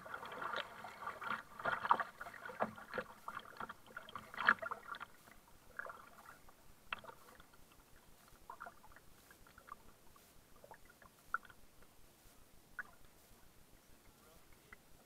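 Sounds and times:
paddle splashing in water: 0.0s - 11.6s.

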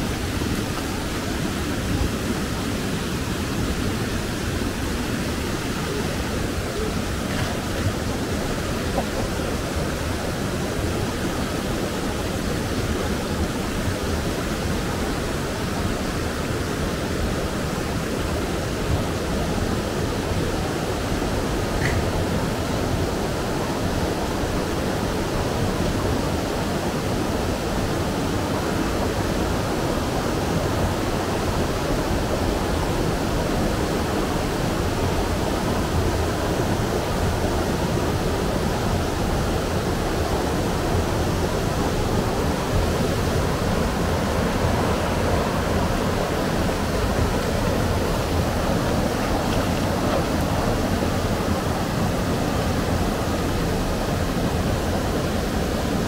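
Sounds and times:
stream rushing over rocks: 0.0s - 56.0s.

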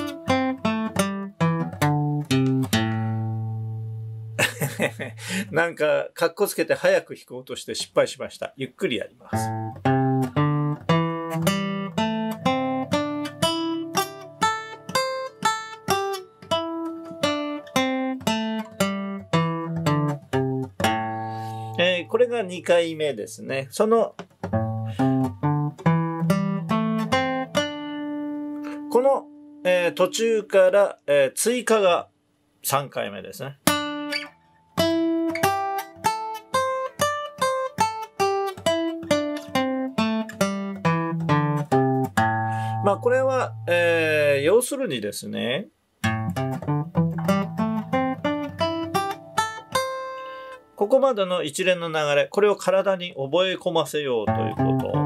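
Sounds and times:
acoustic guitar picking a scale: 0.0s - 5.6s, 9.3s - 23.3s, 24.1s - 30.5s, 33.6s - 44.6s, 46.0s - 50.8s, 54.2s - 55.0s.

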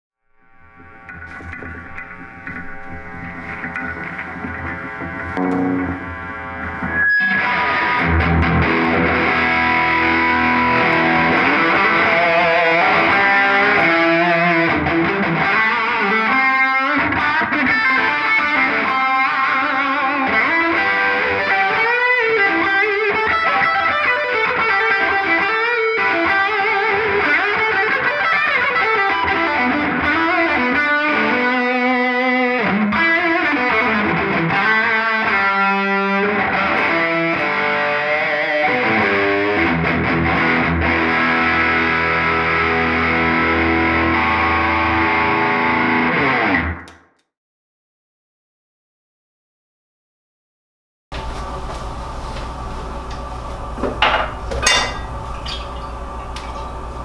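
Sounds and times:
electric guitar lead with bends: 0.3s - 47.0s.

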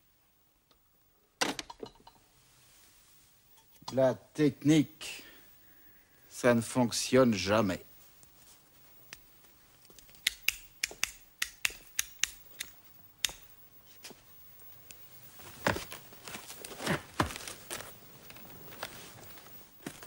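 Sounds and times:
sharp irregular clicks and taps: 9.9s - 13.5s
sofa creaking and rustling: 15.2s - 20.0s.

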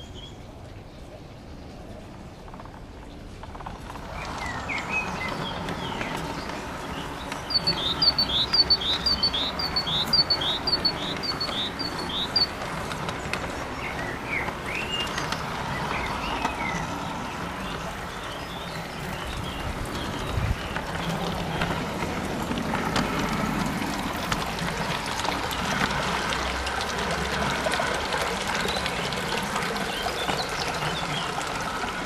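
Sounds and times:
model train rolling on track: 0.0s - 32.0s
bird chirps: 4.2s - 12.6s.

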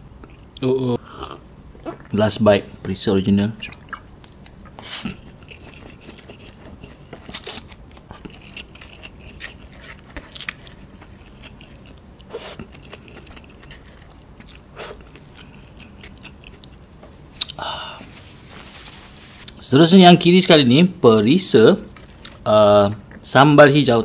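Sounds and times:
chewing noodles: 3.6s - 16.8s.

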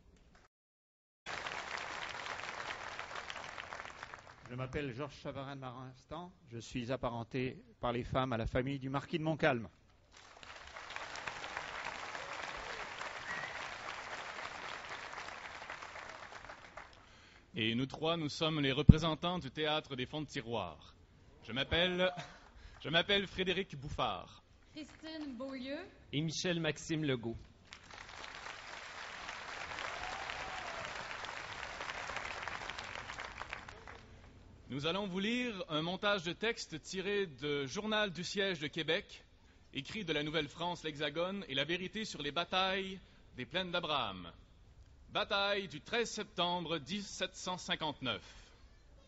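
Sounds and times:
large audience applauding: 1.3s - 4.6s, 10.1s - 17.2s, 27.7s - 34.3s.

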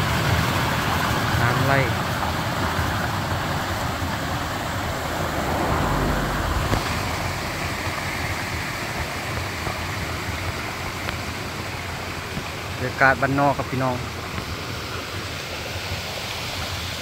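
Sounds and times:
water gushing and splashing: 0.0s - 12.8s.

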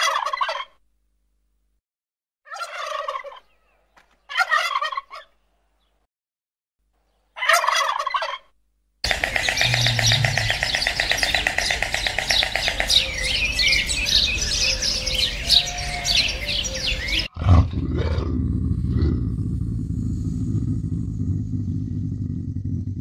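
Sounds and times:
small birds chirping: 9.0s - 17.3s, 19.4s - 22.7s.

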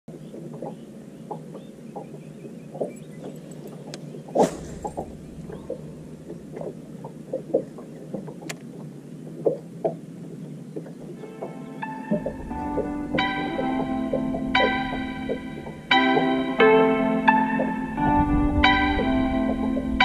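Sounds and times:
waves lapping against boat hull: 0.1s - 16.6s
low steady rumble: 3.5s - 9.2s, 12.2s - 16.0s
sharp thump: 4.4s - 7.1s.

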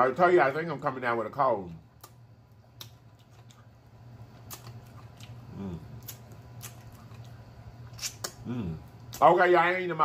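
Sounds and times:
steady low hum: 0.0s - 10.0s
wet lip smacks: 4.4s - 5.4s, 6.0s - 8.4s.

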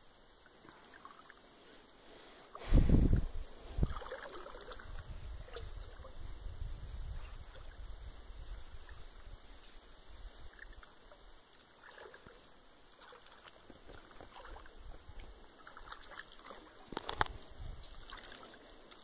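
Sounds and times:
water dripping and sloshing: 3.8s - 6.2s, 10.5s - 19.0s.

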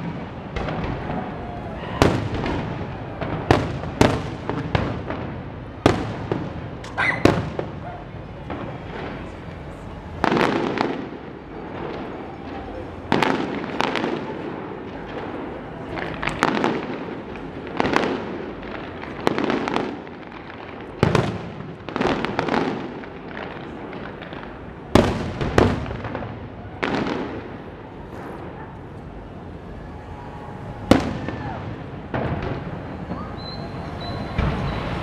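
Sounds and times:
fireworks bursting with rumble: 0.0s - 35.0s.

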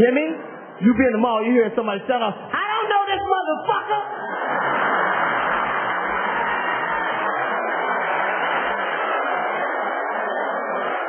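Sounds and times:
audience applauding: 3.9s - 11.0s
audience laughing: 4.0s - 6.8s.

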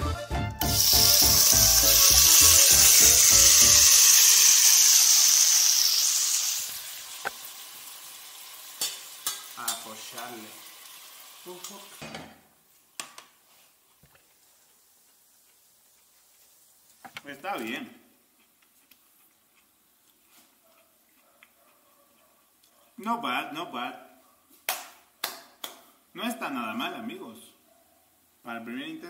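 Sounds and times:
vegetables sizzling in a frying pan: 0.6s - 17.1s.

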